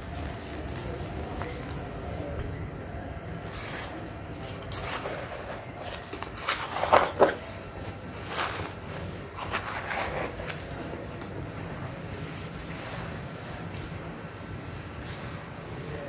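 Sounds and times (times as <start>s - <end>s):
damp earth pouring and thudding: 0.0s - 2.0s.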